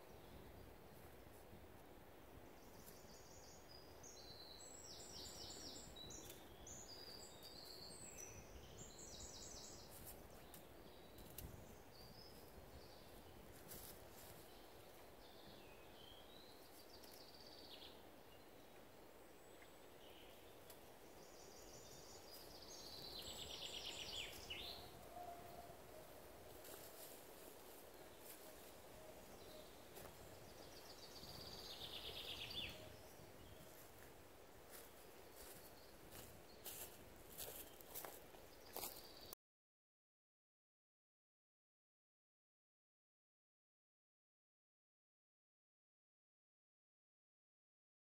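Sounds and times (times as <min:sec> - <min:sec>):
songbirds singing: 0:02.4 - 0:39.4.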